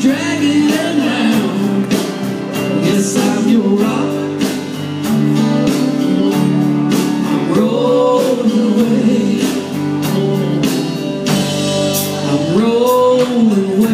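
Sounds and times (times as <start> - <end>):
man singing: 0.0 - 4.8, 7.1 - 11.0, 12.1 - 13.9
drum kit beat: 0.0 - 13.9
electric bass: 0.0 - 13.9
electric guitar: 0.0 - 13.9.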